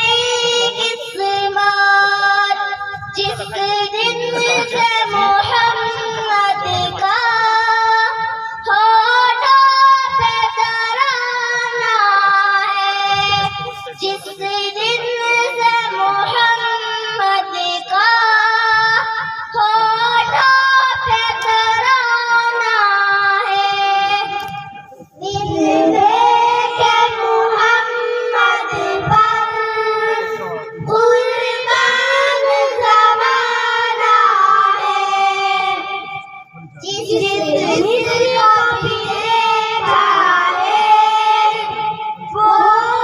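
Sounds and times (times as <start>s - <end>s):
girls singing devotional chant: 0.0s - 43.0s.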